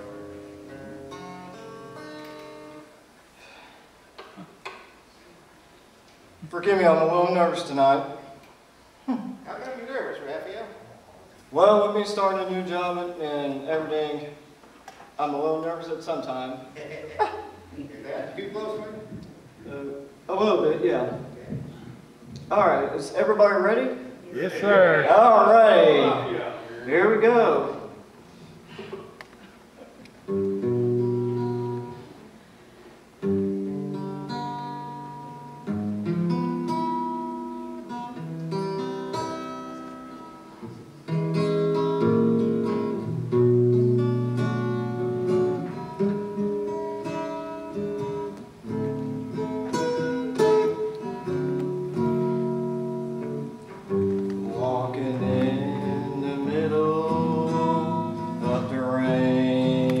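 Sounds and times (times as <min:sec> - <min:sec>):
acoustic guitar strumming: 0:00.0 - 0:03.0, 0:30.2 - 0:32.2, 0:33.2 - 1:00.0
man singing: 0:54.4 - 1:00.0.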